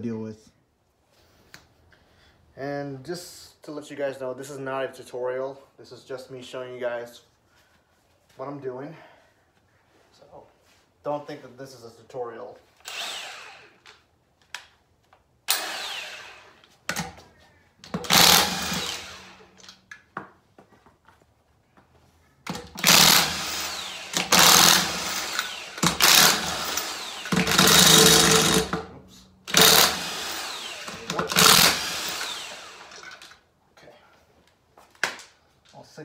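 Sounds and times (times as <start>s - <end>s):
impact wrench bursts: 12.8s - 13.8s, 15.5s - 17.1s, 17.9s - 19.7s, 22.5s - 28.9s, 29.5s - 33.4s.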